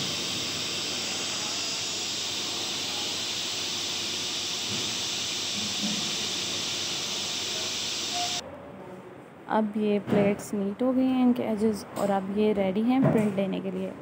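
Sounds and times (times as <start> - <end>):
panel saw running: 0.0 - 8.4.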